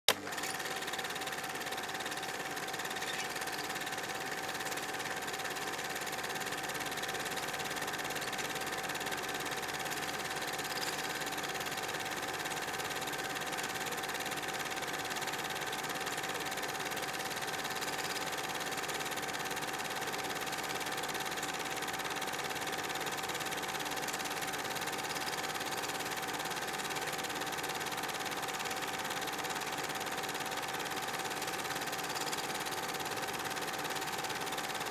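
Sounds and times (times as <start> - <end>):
film projector whirring: 0.1 - 34.9.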